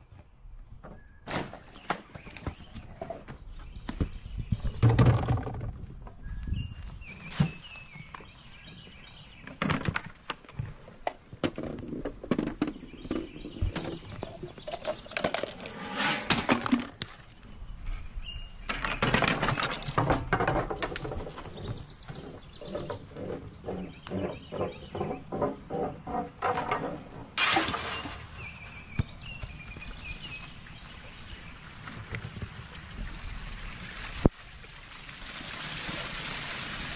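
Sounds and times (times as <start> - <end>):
balls rolling and clattering on track: 4.5 - 6.0, 11.4 - 17.2, 18.7 - 28.4
rattling and scraping: 11.4 - 17.3, 18.8 - 28.7.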